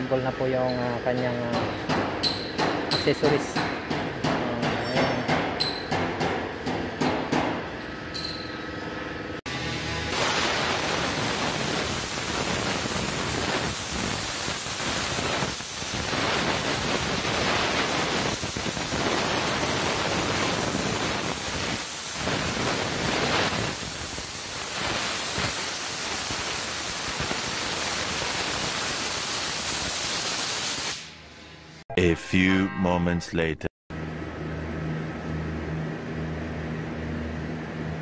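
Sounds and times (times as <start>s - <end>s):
compressed air blow gun hissing: 10.1s - 31.2s.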